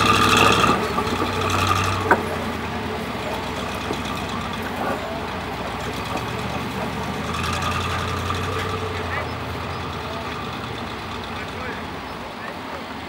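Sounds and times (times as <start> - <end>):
diesel truck engine at low revs: 0.0 - 13.0.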